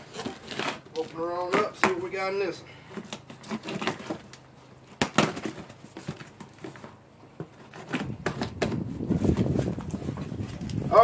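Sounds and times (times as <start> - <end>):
cardboard crackling and rustling: 0.0 - 2.2, 3.0 - 11.0
cardboard snapping: 3.0 - 6.8.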